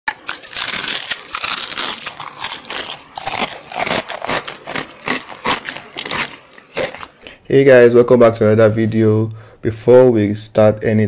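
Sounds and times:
crisp crunching and crackling: 0.1 - 7.2.

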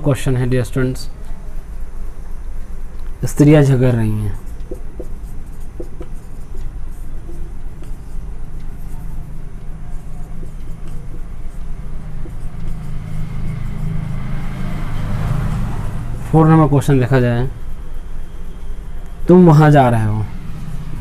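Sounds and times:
vehicle engine rumbling: 20.0 - 21.0.

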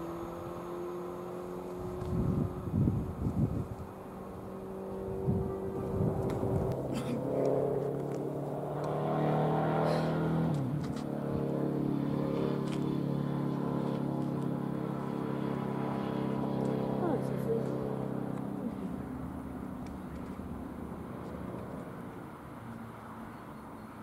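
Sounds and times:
electric train traction whine: 0.0 - 7.0.

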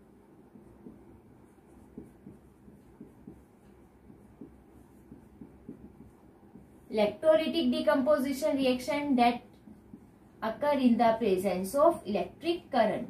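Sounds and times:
marker squeaking on whiteboard: 0.5 - 7.0.

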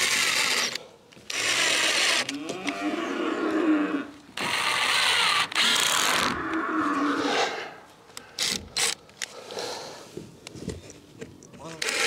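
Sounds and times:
cordless drill driving screws: 0.0 - 2.3, 4.4 - 6.3.

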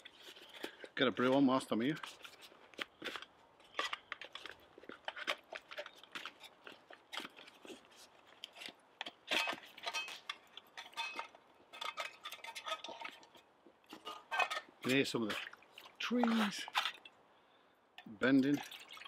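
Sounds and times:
logs snapping and popping: 2.2 - 7.8.

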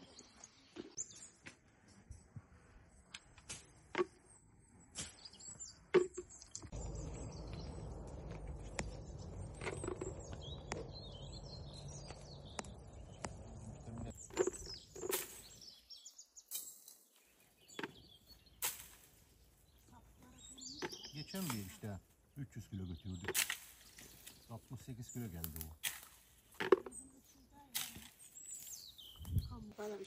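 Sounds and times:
birds chirping: 0.0 - 30.0
steady low rumble: 6.7 - 14.2.

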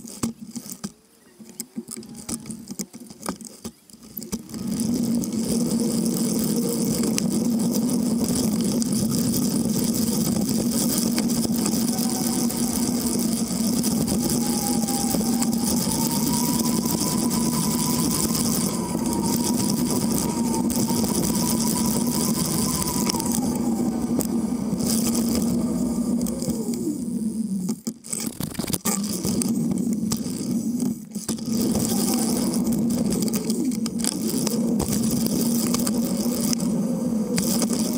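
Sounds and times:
cargo bike rolling hum: 0.0 - 37.9
thin whine rising and falling: 4.1 - 37.9.

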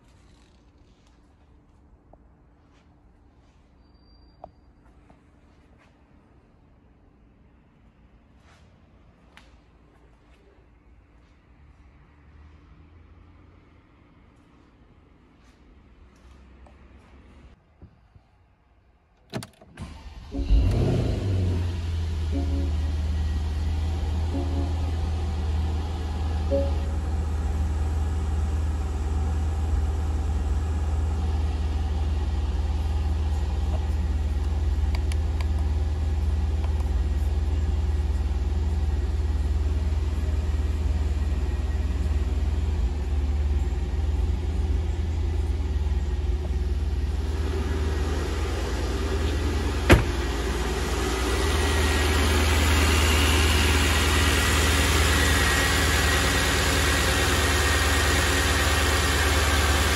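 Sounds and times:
car engine idling: 19.8 - 59.9.

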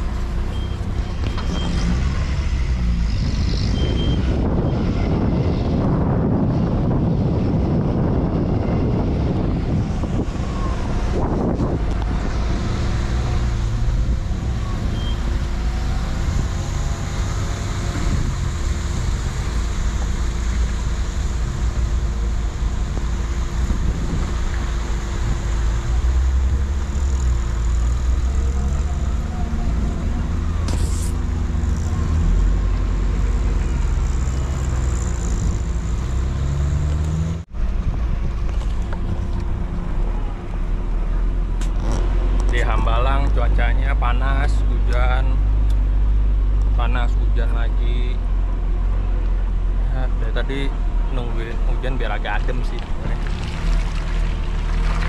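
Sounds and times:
tyres on rough dirt track: 0.0 - 55.0
vehicle engine rumble: 0.0 - 55.0.

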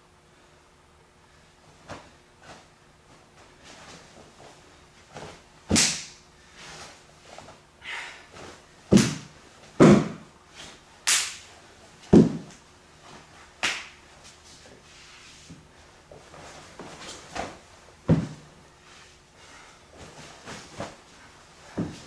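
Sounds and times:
cloth snapping cracks: 5.7 - 6.2, 11.0 - 11.5, 13.6 - 13.9
hands slapping: 5.7 - 6.2, 8.9 - 10.2, 11.0 - 11.4, 13.6 - 14.0
dull thump: 12.1 - 12.5.

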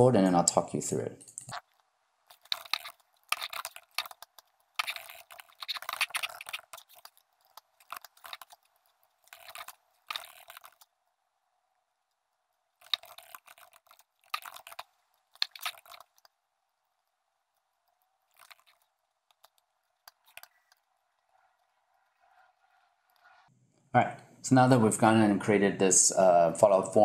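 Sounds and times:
keyboard typing: 1.3 - 10.9, 12.8 - 16.4, 17.5 - 23.4
mouse clicking: 1.3 - 10.9, 12.8 - 16.4, 17.6 - 23.5.

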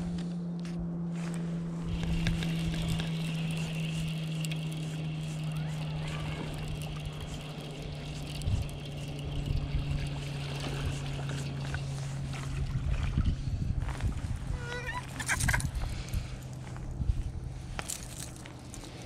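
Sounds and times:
electric trolling motor humming: 0.0 - 19.0.

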